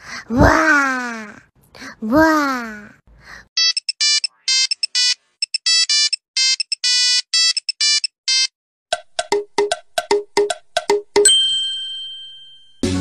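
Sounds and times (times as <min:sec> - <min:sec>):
clicking beat: 0:08.9 - 0:11.3.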